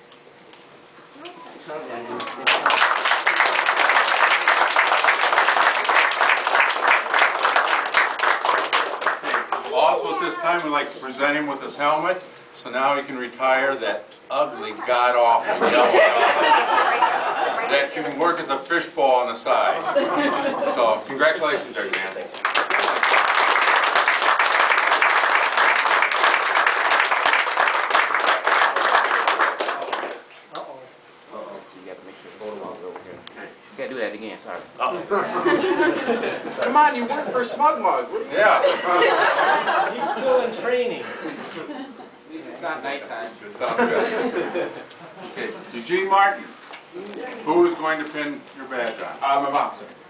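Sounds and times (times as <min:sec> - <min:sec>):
small group applauding: 0:02.0 - 0:10.2, 0:21.9 - 0:30.8.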